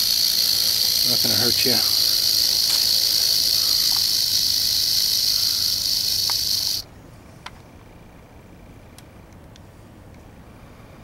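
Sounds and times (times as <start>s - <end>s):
rattlesnake rattling: 0.0s - 6.8s.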